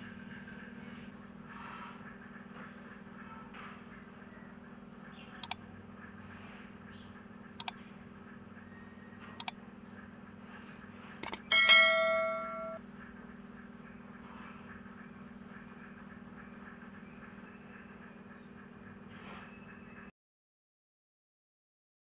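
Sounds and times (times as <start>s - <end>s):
steady low hum: 0.0s - 20.1s
sharp clicks: 11.2s - 11.5s
bell ringing: 11.2s - 12.8s.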